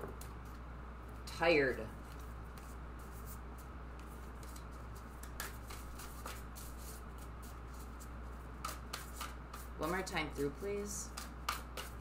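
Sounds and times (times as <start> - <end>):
low steady hum: 0.0 - 12.0
cards being shuffled: 2.0 - 9.7.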